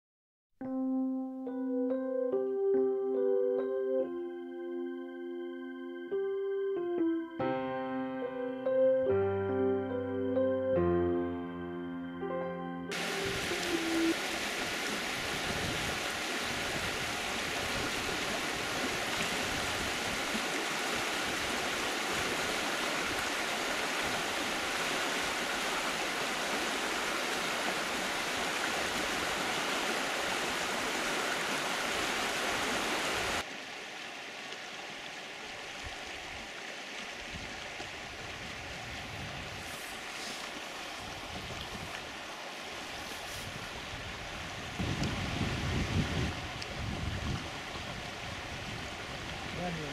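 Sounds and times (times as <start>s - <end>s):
soft water and outdoor background: 0.6s - 49.9s
stream rushing over stones: 12.9s - 49.9s.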